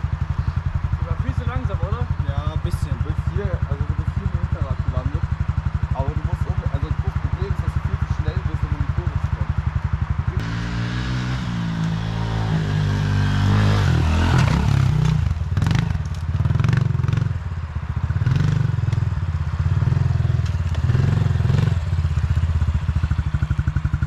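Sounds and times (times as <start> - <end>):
dirt bike engine revving: 4.5 - 17.5, 18.1 - 24.0.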